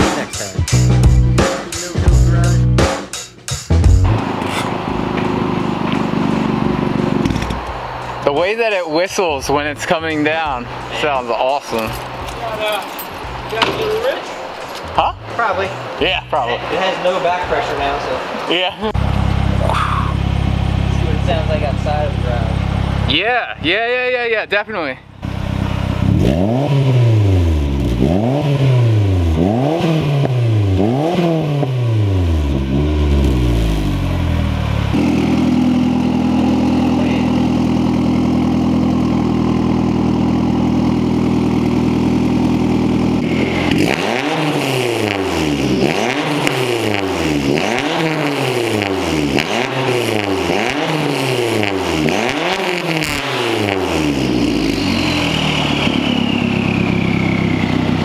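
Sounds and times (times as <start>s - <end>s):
car engine revving and idling: 3.7s - 58.0s
turbo whistle: 54.6s - 57.9s.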